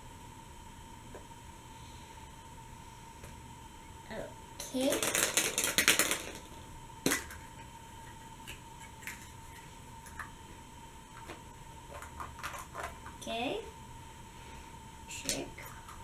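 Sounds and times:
plastic egg clicks: 4.8 - 7.5, 11.2 - 13.2.

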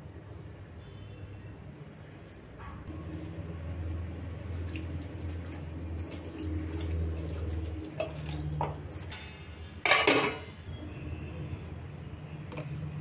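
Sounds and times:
wet squelching of meat: 4.4 - 9.1.

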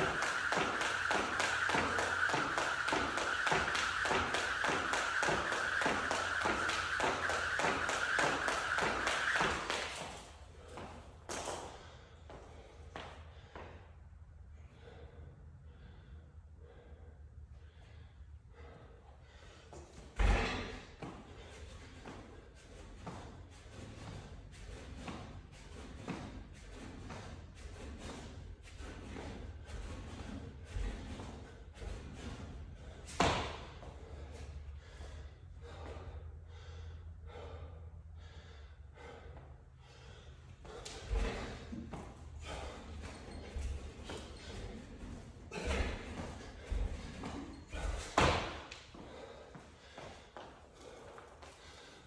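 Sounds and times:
hard rhythmic breathing: 0.0 - 20.1, 20.8 - 52.0
landing thud on rubber floor: 45.5 - 48.7.

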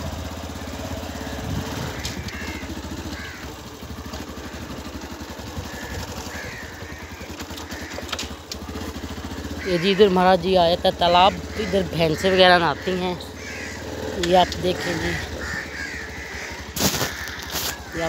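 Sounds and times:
motorcycle engine putter: 0.8 - 9.6, 13.2 - 15.8, 16.6 - 18.0.

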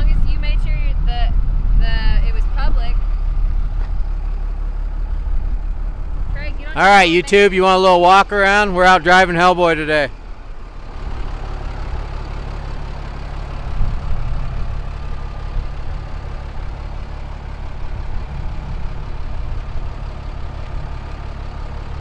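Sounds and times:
diesel engine idling: 0.0 - 22.0.

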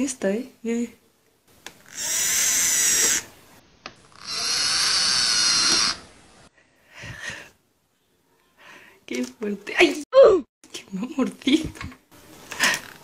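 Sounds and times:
gecko raspy distress calls: 1.8 - 3.3, 4.1 - 6.1.

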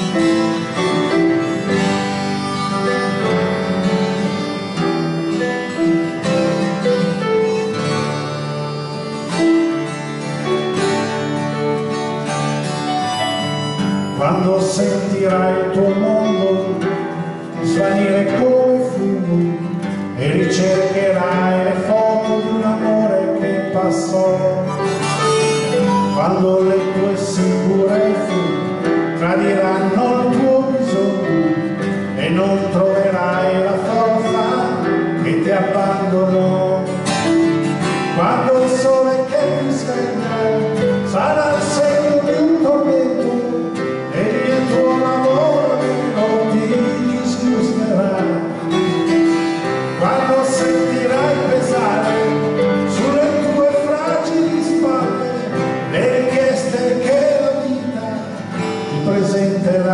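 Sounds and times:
acoustic guitar: 0.0 - 59.9
harmonica: 0.0 - 59.9
piano: 0.0 - 59.9
man singing: 14.0 - 59.9.

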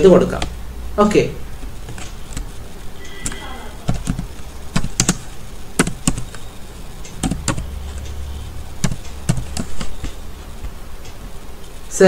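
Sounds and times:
keyboard keys clicking: 3.2 - 8.2, 8.8 - 11.2.

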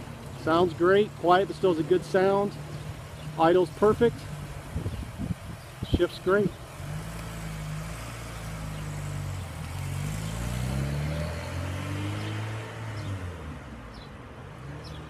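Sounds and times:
car engine accelerating: 0.0 - 15.0.

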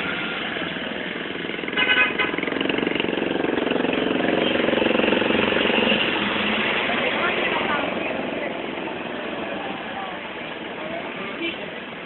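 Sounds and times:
truck engine rumble: 0.0 - 12.0
vehicle engines passing: 0.0 - 12.0
car horn honk: 1.7 - 2.5.

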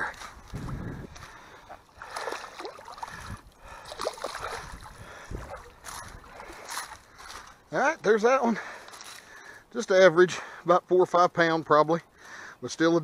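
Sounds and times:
shallow water splashing: 0.0 - 7.6.

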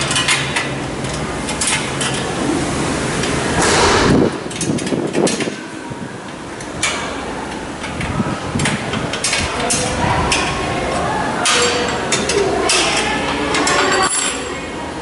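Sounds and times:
wrenches clinking on metal bolts: 11.4 - 14.5.

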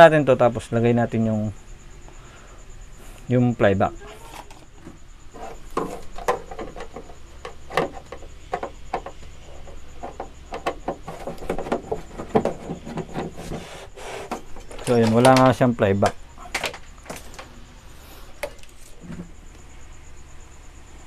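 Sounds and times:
plastic knocks clicks and scraping: 4.3 - 17.5.

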